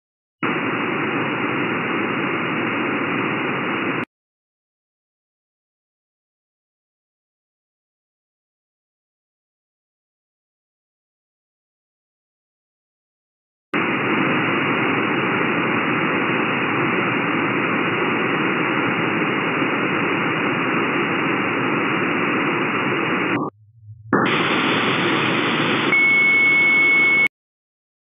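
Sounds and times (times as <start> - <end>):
shortwave radio hiss: 24.2 - 26.0
steady high whistle: 24.2 - 27.3.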